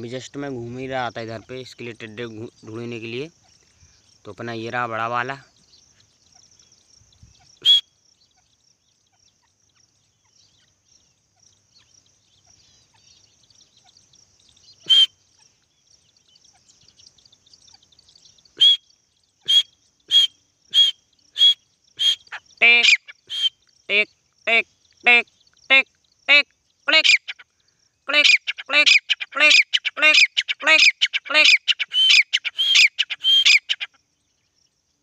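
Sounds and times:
francolin calls: 0:00.0 - 0:35.0.

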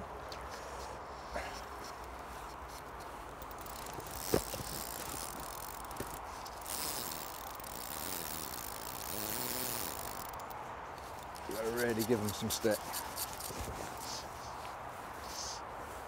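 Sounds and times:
fishing reel drag buzzing: 0:03.4 - 0:14.2.

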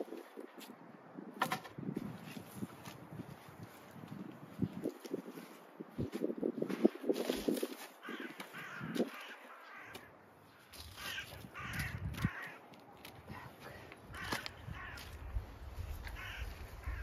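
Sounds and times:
crows cawing: 0:07.9 - 0:17.0.

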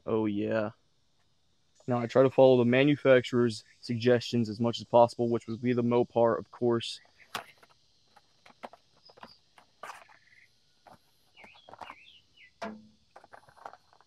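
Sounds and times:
paper rustling: 0:07.0 - 0:12.0, 0:13.1 - 0:14.0.

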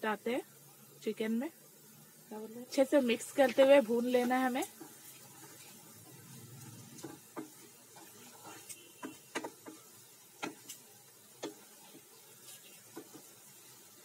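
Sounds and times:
wooden spatula knocking steel pot: 0:07.0 - 0:08.2, 0:09.0 - 0:10.7, 0:11.4 - 0:11.7.

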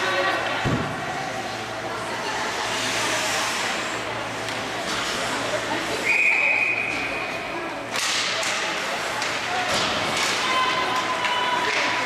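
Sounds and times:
murmur of voices: 0:00.0 - 0:12.0.

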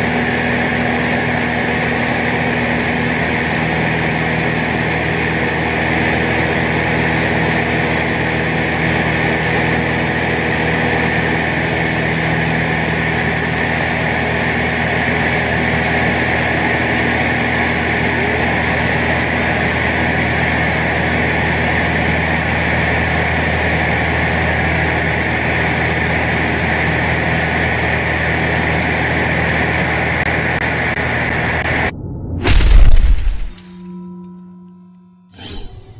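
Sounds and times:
propeller plane cabin drone: 0:00.0 - 0:35.9
crashing shattering sound effect: 0:32.3 - 0:33.8.

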